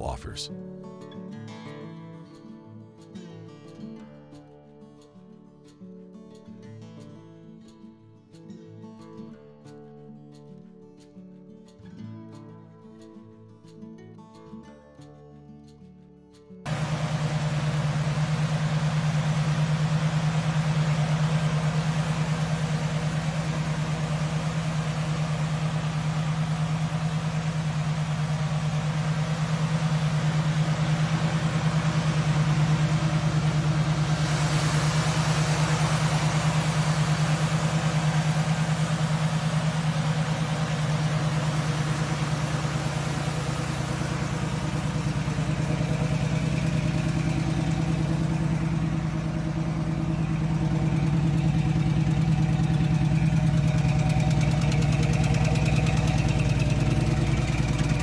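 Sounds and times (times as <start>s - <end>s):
rushing hiss: 16.7s - 48.5s
car engine idling: 16.7s - 58.0s.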